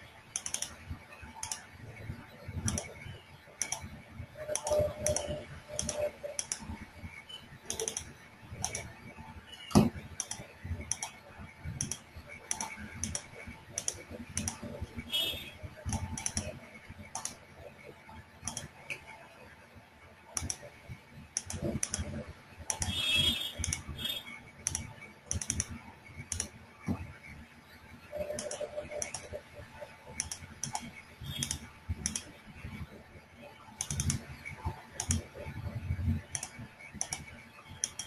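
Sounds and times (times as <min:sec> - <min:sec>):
typing on computer keyboard: 0:00.3 - 0:01.8, 0:02.5 - 0:17.6, 0:18.4 - 0:19.2, 0:20.3 - 0:27.0, 0:28.1 - 0:29.4, 0:30.1 - 0:32.4, 0:33.8 - 0:35.4, 0:36.0 - 0:38.0.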